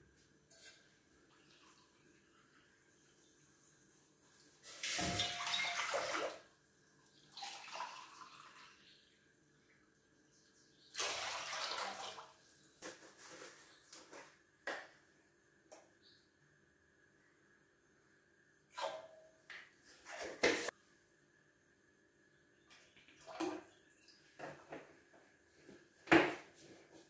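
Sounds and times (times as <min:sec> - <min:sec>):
water pouring into metal pot: 0:07.3 - 0:08.8, 0:11.0 - 0:12.3.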